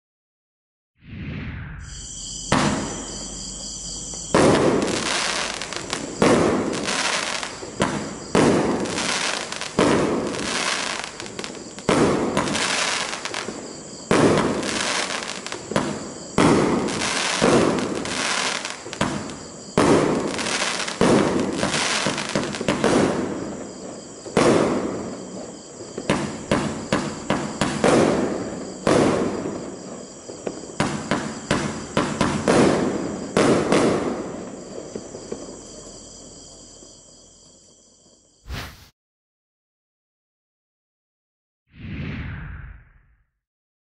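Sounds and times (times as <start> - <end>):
firework cake firing bangs: 2.5 - 3.0, 4.3 - 23.4, 26.1 - 29.6, 30.8 - 34.4.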